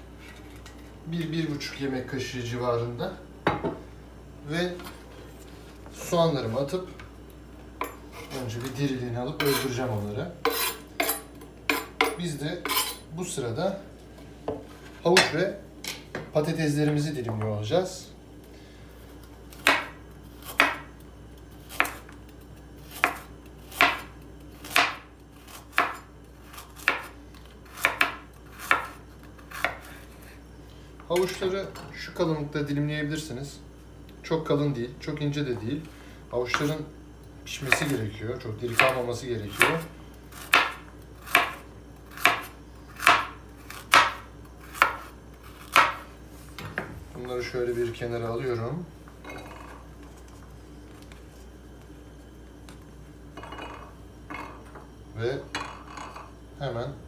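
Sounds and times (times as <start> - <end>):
knife slicing carrot on board: 22.9 - 26.0, 27.7 - 30.0, 39.6 - 46.0.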